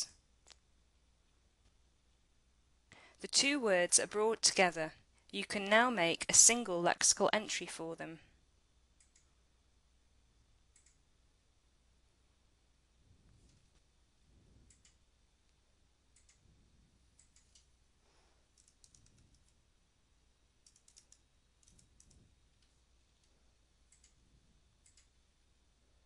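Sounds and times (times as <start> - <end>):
low steady hum: 0.0 - 26.0
mouse clicks: 10.8 - 11.0, 18.5 - 19.6, 20.6 - 22.2
faint keyboard keystrokes: 18.5 - 19.6, 20.6 - 24.2.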